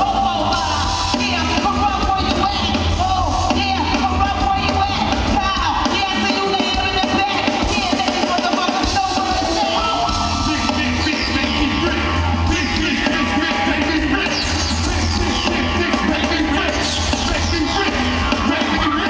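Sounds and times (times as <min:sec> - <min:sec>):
crowd singing and yelling: 0:00.0 - 0:19.0
live band playing loudly: 0:00.0 - 0:19.0.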